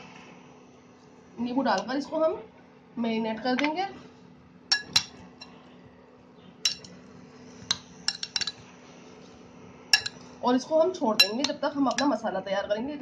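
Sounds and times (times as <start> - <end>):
spoon clinking against glass bowl: 4.7 - 5.5, 6.7 - 6.9, 8.1 - 8.6, 10.0 - 10.2, 11.2 - 12.1.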